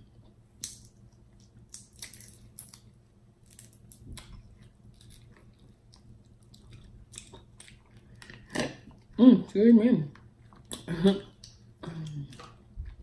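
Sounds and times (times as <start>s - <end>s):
crab shell cracking: 0.6s - 4.3s.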